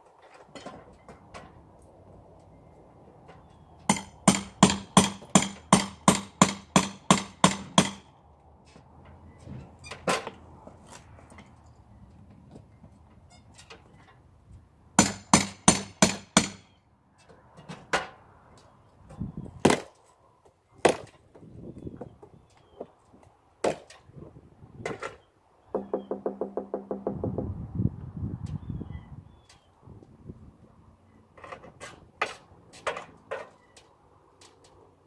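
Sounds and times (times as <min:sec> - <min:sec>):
hammer striking window frame: 0:15.0 - 0:16.6, 0:25.8 - 0:27.3.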